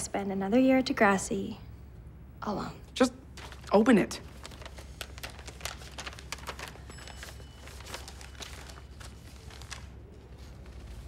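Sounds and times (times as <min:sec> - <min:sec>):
paper rustling and crinkling: 0:03.3 - 0:11.0.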